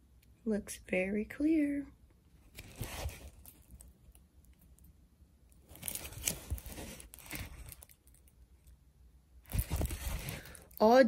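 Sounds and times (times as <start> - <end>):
plastic crinkling rustle: 2.4 - 4.9, 5.5 - 8.4, 9.5 - 10.9.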